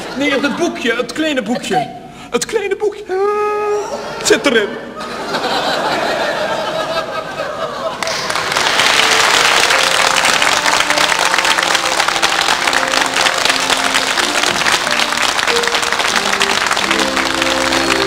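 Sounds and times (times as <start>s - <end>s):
audience applauding: 7.9s - 18.0s
band playing instrumental music: 9.8s - 18.0s.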